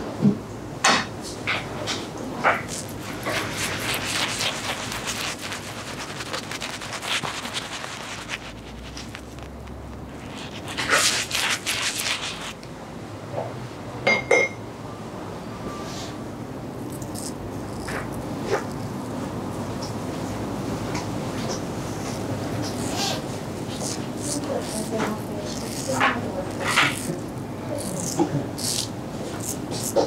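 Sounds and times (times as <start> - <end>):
razor scraping stubble: 2.5 - 12.6, 16.9 - 19.0, 22.0 - 30.0.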